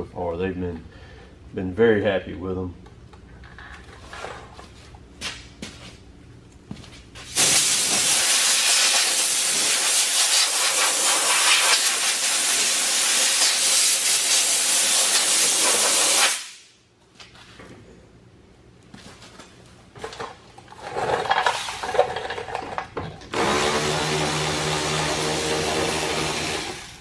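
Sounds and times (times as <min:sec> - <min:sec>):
pressurized jet hissing: 0:07.4 - 0:16.5.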